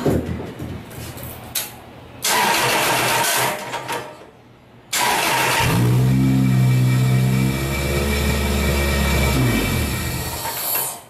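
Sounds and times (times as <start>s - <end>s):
engine cranked by starter: 2.2s - 3.6s, 4.9s - 10.6s
car engine running steadily: 5.6s - 10.4s.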